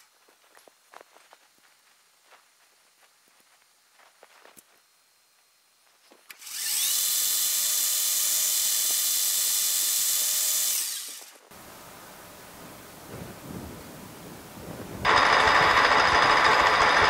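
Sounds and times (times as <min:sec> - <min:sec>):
metal lathe whining: 0:15.1 - 0:17.0.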